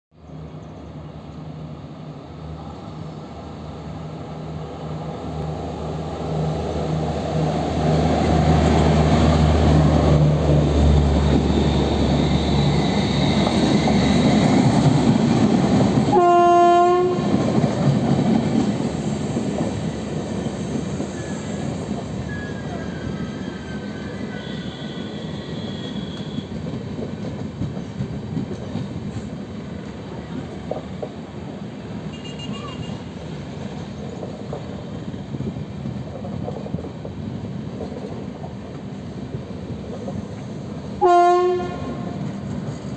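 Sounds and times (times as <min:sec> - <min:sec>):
electric locomotive hum: 0:00.2 - 0:42.9
train wheels rumbling on rails: 0:02.5 - 0:42.9
train horn blast: 0:16.1 - 0:17.4, 0:24.3 - 0:26.6, 0:41.0 - 0:42.3
wheel squeals: 0:22.2 - 0:26.6.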